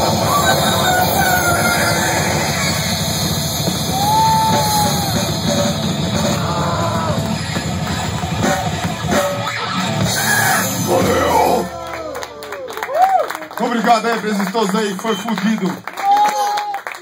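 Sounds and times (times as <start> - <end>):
distorted electric guitar: 0.0 - 12.0
drum kit: 0.0 - 12.4
bass guitar: 0.0 - 12.6
vocalist yelling: 10.1 - 12.1.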